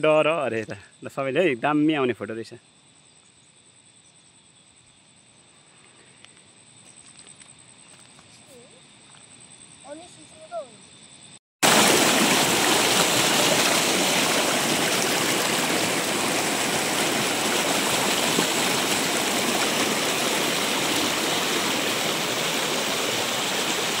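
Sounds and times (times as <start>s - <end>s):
river rushing over rocks: 11.6s - 24.0s.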